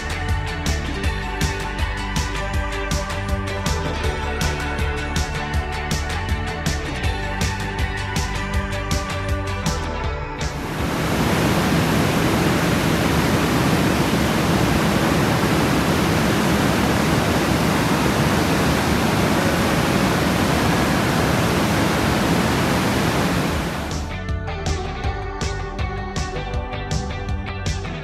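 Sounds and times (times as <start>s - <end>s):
water rushing through rock gorge: 10.6s - 24.0s.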